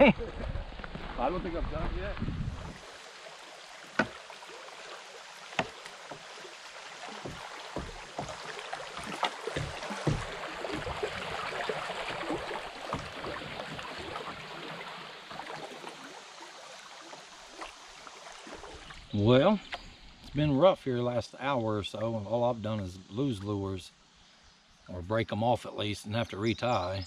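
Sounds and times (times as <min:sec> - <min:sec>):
water rushing around kayak hull: 0:00.0 - 0:23.8
knocks and thumps against boat: 0:04.0 - 0:04.2, 0:07.1 - 0:14.5.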